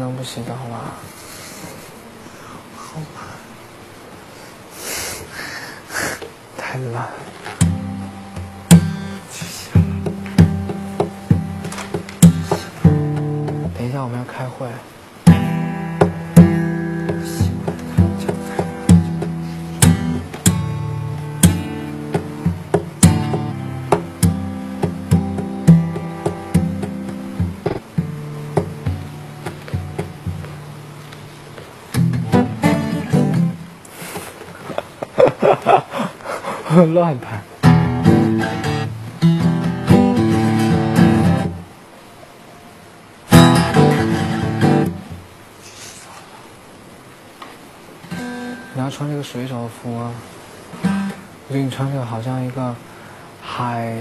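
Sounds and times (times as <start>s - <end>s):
acoustic guitar strumming: 7.3s - 14.0s, 15.2s - 34.6s, 37.6s - 41.7s, 43.3s - 45.3s, 48.0s - 49.0s, 50.6s - 51.5s.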